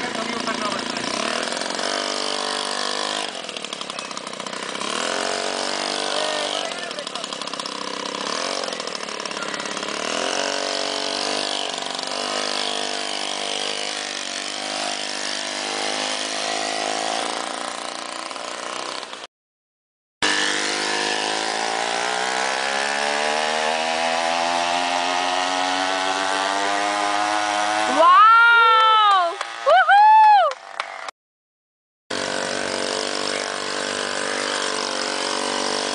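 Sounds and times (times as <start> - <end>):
small engine revving: 0.0 - 19.3, 20.2 - 29.7, 32.1 - 35.9.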